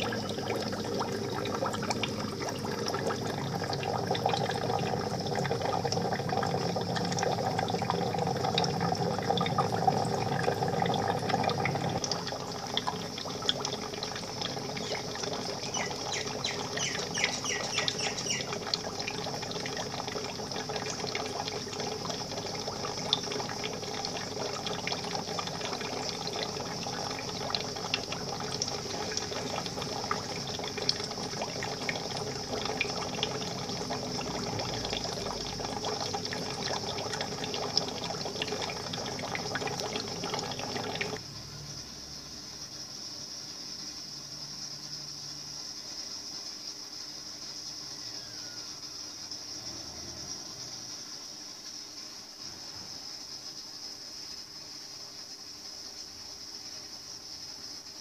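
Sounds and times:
water bubbling and trickling: 0.0s - 41.2s.

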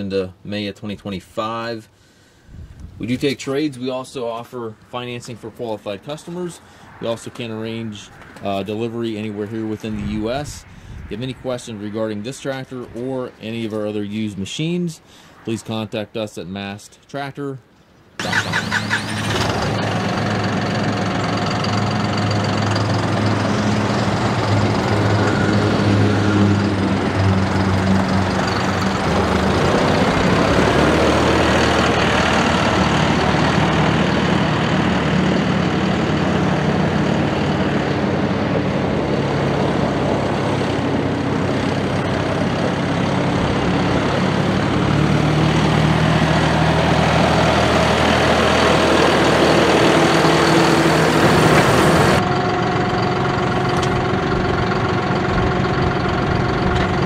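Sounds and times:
tractor diesel engine running: 18.2s - 57.0s.

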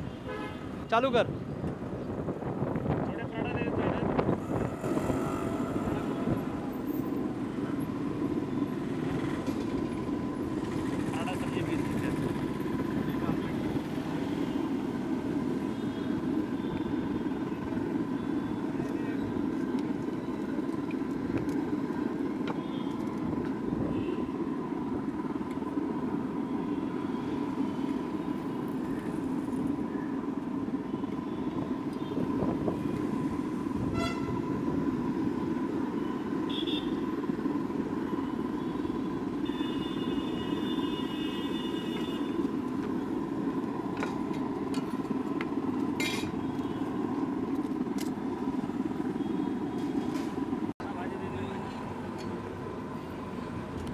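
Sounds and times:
traffic rumble: 0.0s - 53.9s
vehicle horn: 0.1s - 0.8s, 23.8s - 24.3s, 33.9s - 34.5s, 36.5s - 37.0s, 39.4s - 42.4s.

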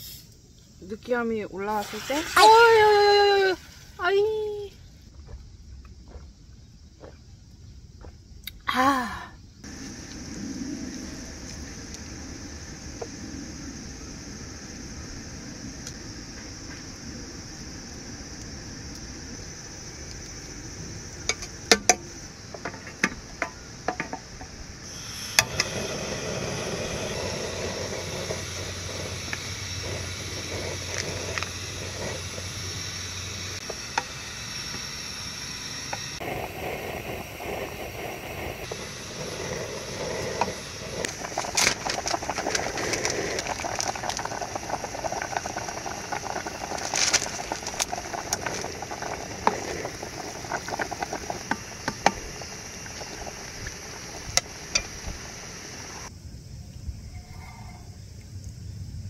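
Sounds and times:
soup bubbling in pot: 9.6s - 56.1s.

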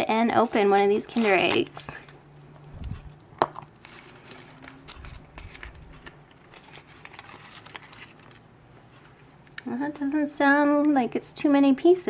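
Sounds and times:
foil wrapper crinkling: 0.0s - 8.5s.

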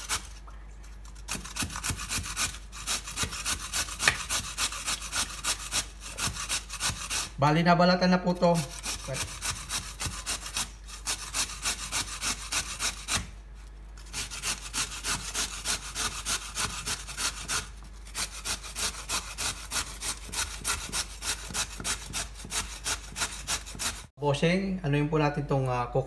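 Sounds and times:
carrot rasping on a grater: 0.0s - 0.4s, 1.2s - 7.4s, 8.2s - 13.3s, 14.0s - 24.1s.

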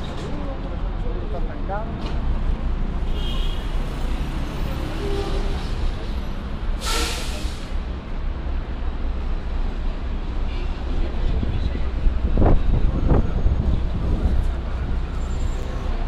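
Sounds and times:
traffic engines rumbling: 0.0s - 16.0s
loud burst of hissing air: 6.8s - 7.8s.

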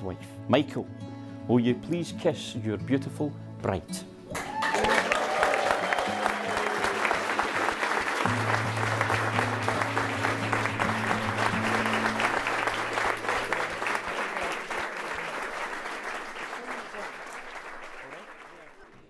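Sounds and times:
music: 0.0s - 16.6s
guests applauding: 4.3s - 19.0s.

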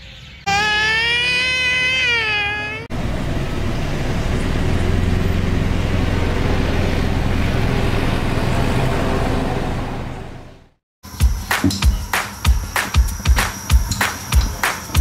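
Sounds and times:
boy squealing: 0.5s - 2.9s
road traffic roar: 1.4s - 10.7s.

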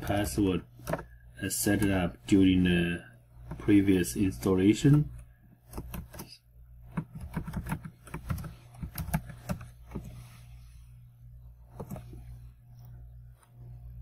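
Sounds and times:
steady low hum: 0.0s - 14.0s
keyboard keys clicking: 6.9s - 9.7s.

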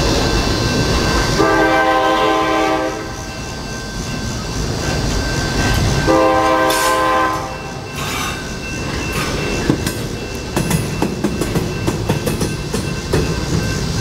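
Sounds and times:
train horn held note: 1.4s - 3.1s, 6.1s - 7.6s
wheels clicking over rail joints: 3.8s - 14.0s.

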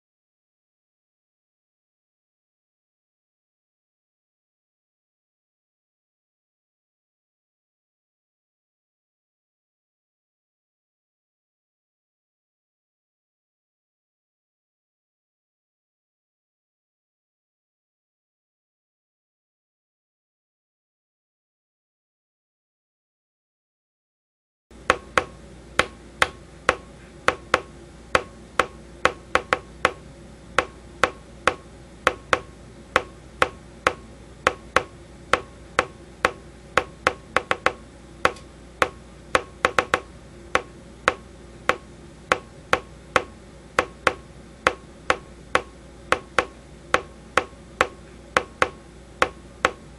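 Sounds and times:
steady low hum: 24.7s - 49.9s.

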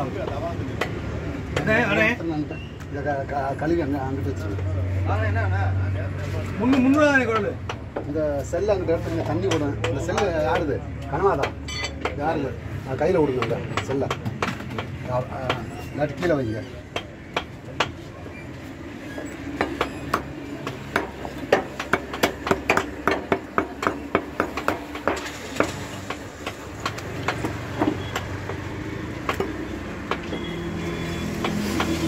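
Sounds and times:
cleaver chopping meat on wood: 0.2s - 1.8s, 6.6s - 8.2s, 9.2s - 12.3s, 13.2s - 15.7s, 16.9s - 18.0s, 19.4s - 32.0s.

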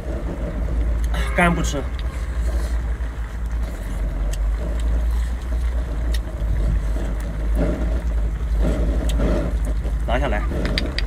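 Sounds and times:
deep rumble: 0.0s - 11.0s
man chewing: 1.8s - 11.0s.

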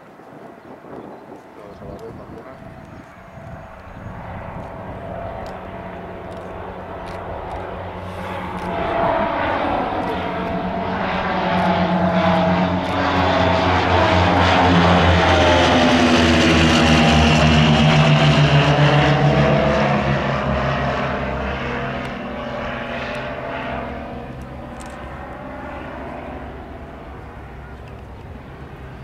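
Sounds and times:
propeller plane flying overhead: 0.0s - 29.0s.

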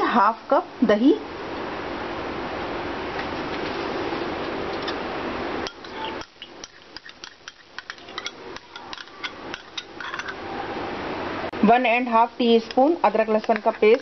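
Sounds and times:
spoon scraping glass bowl: 5.6s - 10.4s
spoon tapping bowl rim: 5.6s - 10.4s, 12.6s - 14.0s.

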